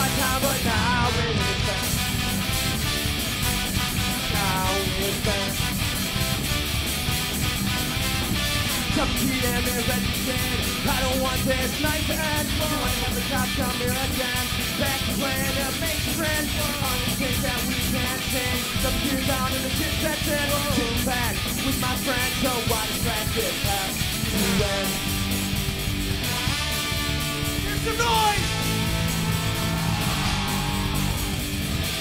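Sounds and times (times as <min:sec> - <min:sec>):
horn section: 0:00.0 - 0:06.6, 0:07.3 - 0:09.3, 0:24.1 - 0:25.3, 0:26.2 - 0:31.4
live rock band playing: 0:00.0 - 0:32.0.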